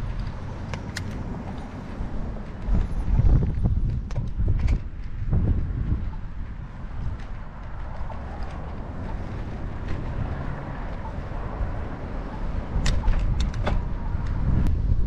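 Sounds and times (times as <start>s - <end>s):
sharp clicks or rattles: 0.0s - 1.7s, 12.3s - 14.4s
wind and road noise: 0.0s - 15.0s.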